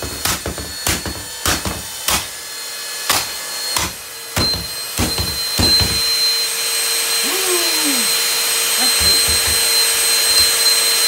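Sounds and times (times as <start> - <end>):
vacuum motor whir and whine: 0.0 - 11.0.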